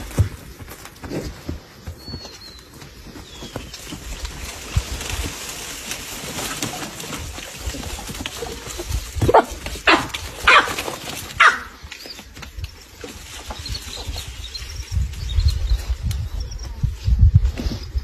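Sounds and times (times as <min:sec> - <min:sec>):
outdoor background noise: 0:00.0 - 0:18.0
baboons barking: 0:09.2 - 0:10.8.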